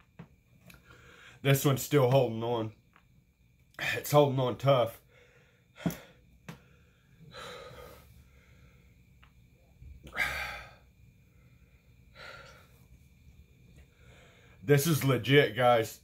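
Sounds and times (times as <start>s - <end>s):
man breathing hard: 0.8s - 1.4s, 5.0s - 9.1s, 10.0s - 13.0s, 13.8s - 14.6s.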